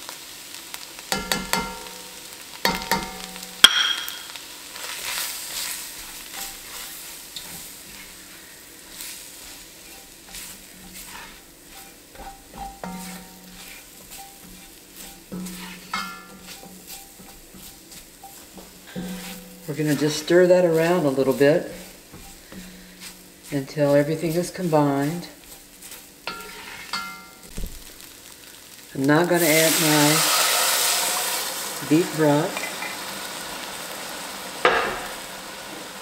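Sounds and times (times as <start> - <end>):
vegetables sizzling in a pot: 0.0 - 36.0
spatula stirring: 1.1 - 3.6, 4.7 - 28.8
sharp knocks against pot: 2.7 - 4.2.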